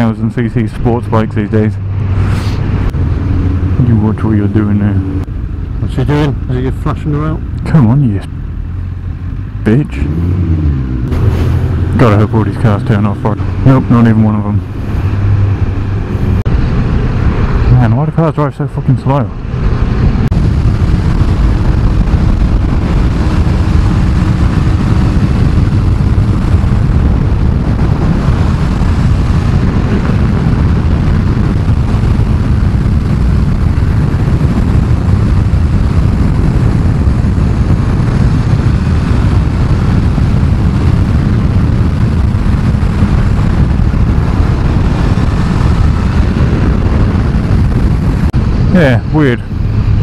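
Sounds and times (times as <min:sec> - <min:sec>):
wind rush on helmet camera: 0:00.0 - 0:50.0
motorcycle engine running: 0:19.3 - 0:50.0.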